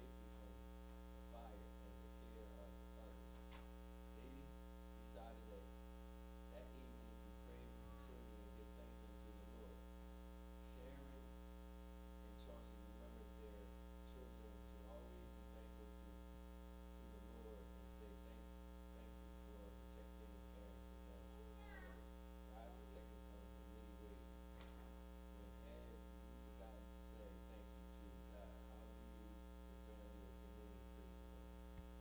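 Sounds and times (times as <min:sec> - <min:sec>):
electrical mains hum: 0:00.0 - 0:32.0
faint indistinct voices: 0:01.3 - 0:03.2, 0:04.2 - 0:04.5, 0:06.5 - 0:09.8, 0:12.2 - 0:16.0, 0:19.0 - 0:29.3.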